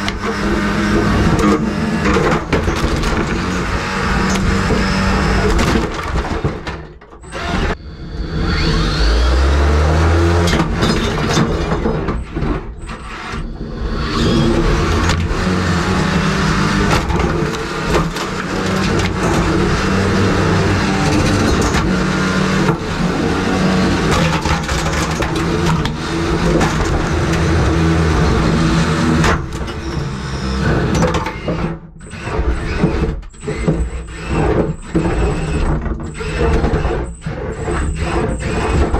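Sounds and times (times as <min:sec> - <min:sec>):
knocks and clattering debris: 0:00.0 - 0:07.3, 0:14.6 - 0:30.0
robot weapon motor whining: 0:00.0 - 0:38.9.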